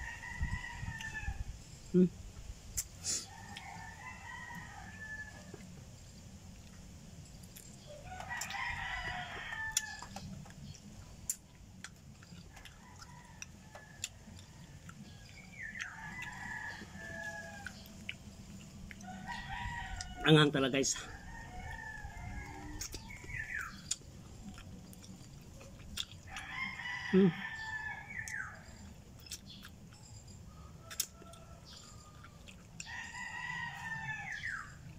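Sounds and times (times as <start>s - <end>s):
rooster crowing: 0.0s - 1.6s, 3.2s - 5.7s, 8.0s - 10.2s, 15.8s - 18.0s, 19.0s - 23.8s, 26.3s - 28.9s, 30.5s - 34.9s.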